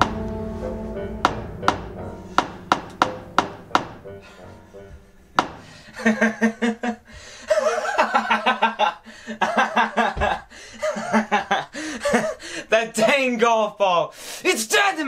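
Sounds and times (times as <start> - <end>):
man laughing: 6.0 - 12.4.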